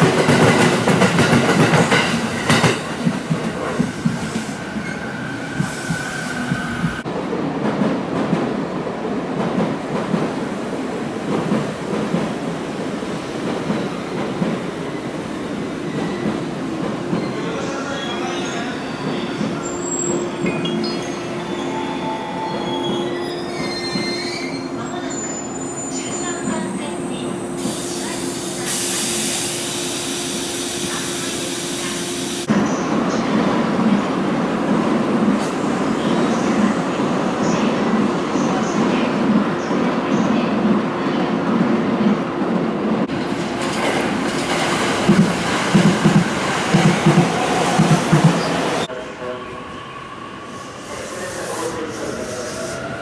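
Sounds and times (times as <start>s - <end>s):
steady train hum: 0.0s - 53.0s
train wheels squealing on rails: 4.1s - 7.0s, 14.9s - 32.9s, 49.8s - 53.0s
loud hiss: 50.6s - 52.8s.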